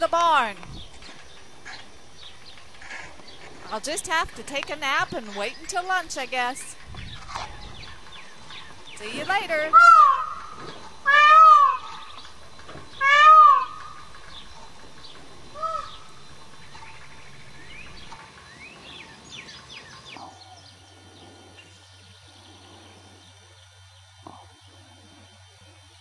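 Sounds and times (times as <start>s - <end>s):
faint steady hum: 0.0s - 26.0s
small birds chirping: 0.0s - 26.0s
loud animal call: 9.0s - 14.6s, 15.4s - 17.1s.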